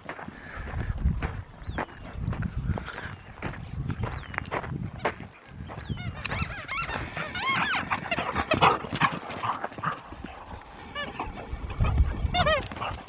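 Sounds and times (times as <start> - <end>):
animal squeaky calls: 5.8 - 8.3, 12.3 - 12.8.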